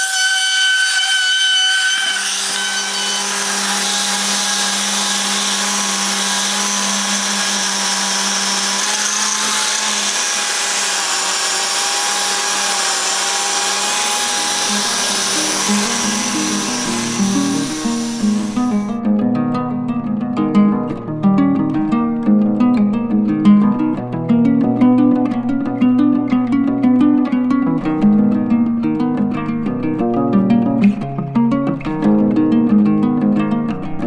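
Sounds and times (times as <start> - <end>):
plucked-string music: 0.0 - 34.0
orbital sander sanding wood: 1.9 - 18.9.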